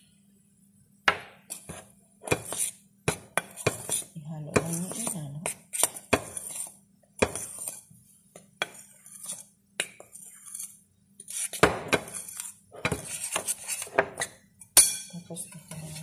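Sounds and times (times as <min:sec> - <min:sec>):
spoon clinking against glass bowl: 0:14.8 - 0:15.2.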